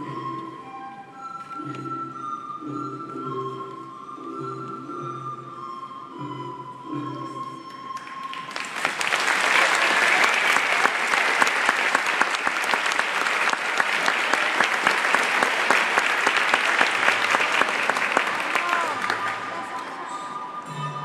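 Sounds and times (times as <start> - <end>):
crowd applauding: 8.0 - 20.2.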